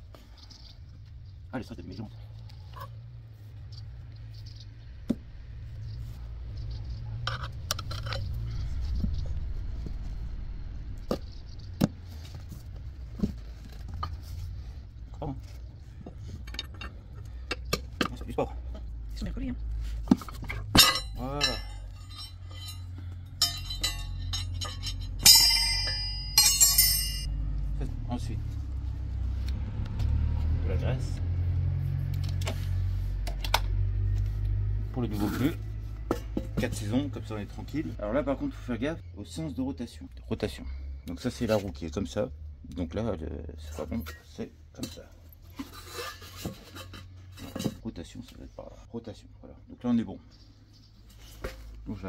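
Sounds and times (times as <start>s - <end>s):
steady low rumble: 0.0s - 30.1s
metal parts clicking: 20.3s - 27.3s
ringing metal clanks: 20.5s - 27.3s
metallic clinks of hand tools: 20.7s - 27.3s.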